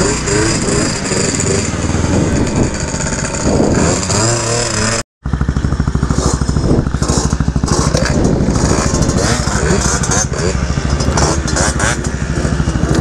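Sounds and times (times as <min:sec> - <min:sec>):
scooter engines revving: 0:00.0 - 0:13.0
engine idling with pulsing beat: 0:05.2 - 0:13.0.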